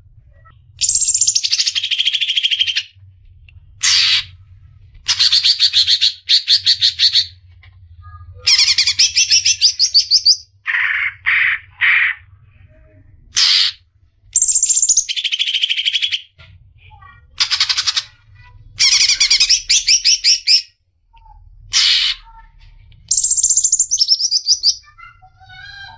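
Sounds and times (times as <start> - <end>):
faint low hum: 0.0 - 25.9
bird singing trills: 0.8 - 2.9, 8.5 - 10.5, 14.4 - 16.3, 18.8 - 20.7, 23.1 - 25.0.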